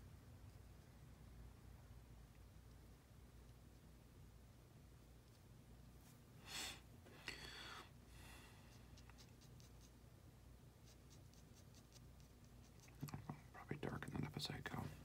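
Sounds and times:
pen scratching on paper: 8.8 - 10.0, 10.8 - 13.0.

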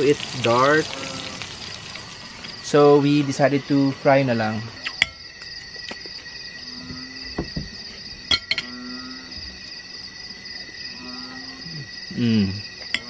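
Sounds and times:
night insects trilling: 0.0 - 13.0
cutlery clinking on plates: 8.3 - 8.7.

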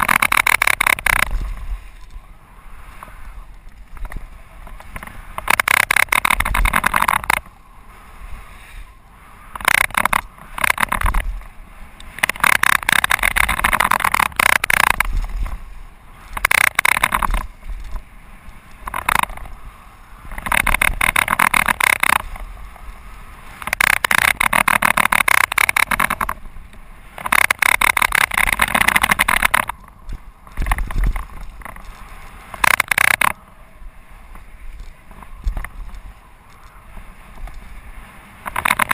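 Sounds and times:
bike tyres rumbling on gravel: 9.4 - 38.9.

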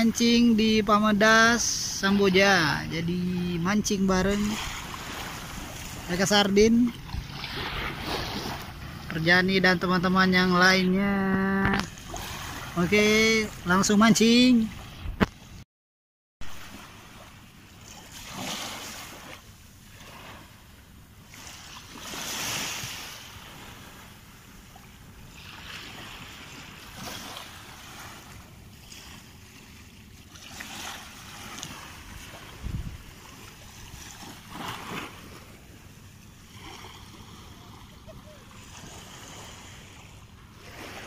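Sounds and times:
gentle waves on sandy beach: 0.0 - 15.6, 16.4 - 41.0
wind on microphone: 14.8 - 15.6, 32.0 - 34.1.

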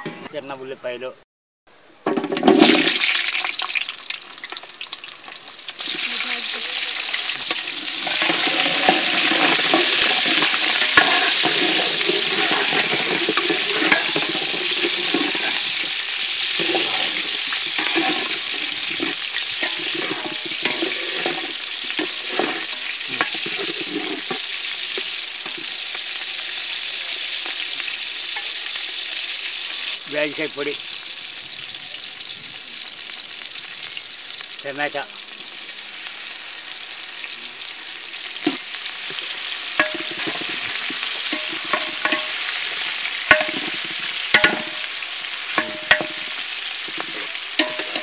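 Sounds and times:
onions sizzling in hot oil: 2.2 - 48.0
metal spatula scraping pot: 5.8 - 25.8, 38.4 - 48.0.

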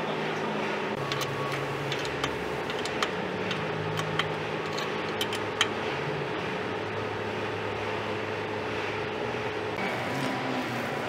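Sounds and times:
steady workshop hum: 0.0 - 11.0
metal clicks and clinks: 1.0 - 5.7.

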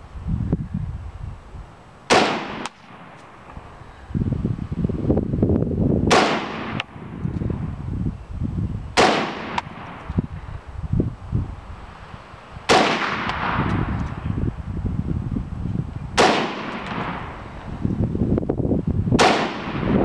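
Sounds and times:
rifle shots with echo: 2.1 - 3.6, 6.1 - 7.2, 9.0 - 10.1, 12.7 - 14.0, 16.2 - 17.5, 19.2 - 20.0.

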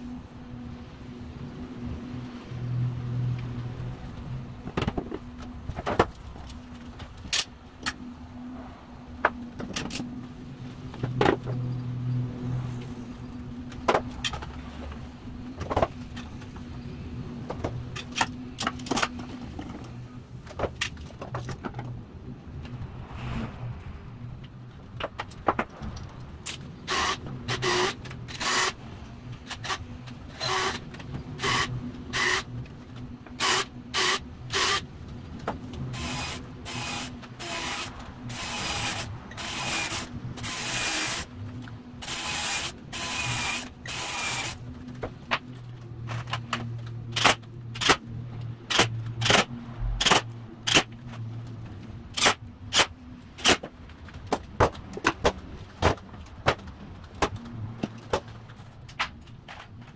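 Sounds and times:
cordless drill whirring: 30.4 - 30.8, 31.4 - 32.4, 36.0 - 41.2, 42.0 - 44.6
sharp clicks and knocks: 44.9 - 59.9.

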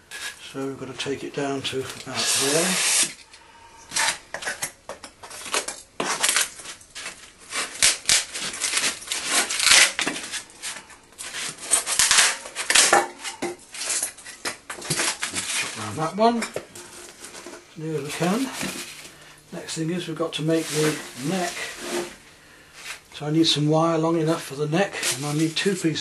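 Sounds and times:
blade scraping foam: 2.1 - 3.2.

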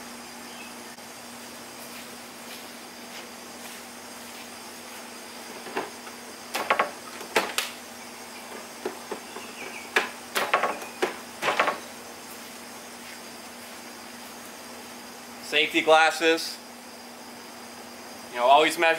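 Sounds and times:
faint hum: 0.0 - 18.9.

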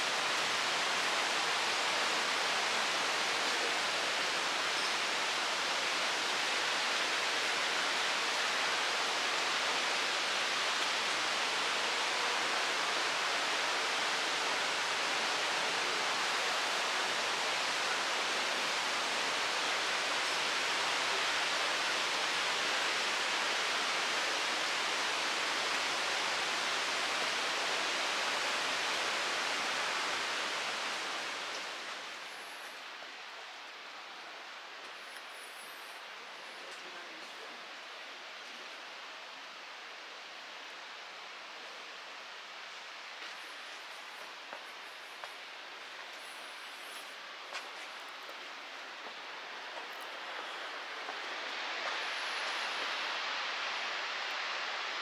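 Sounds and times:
water rushing: 42.5 - 55.0.

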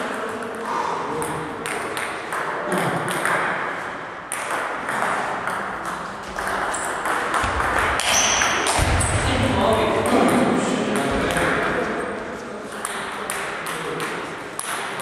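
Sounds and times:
ball bouncing on table: 4.3 - 9.3, 12.7 - 15.0.

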